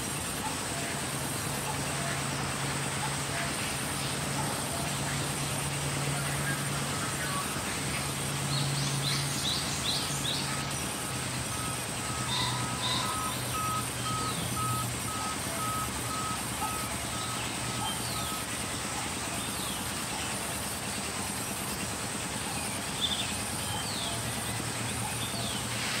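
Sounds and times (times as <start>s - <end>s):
electronic beeping: 10.6s - 18.5s.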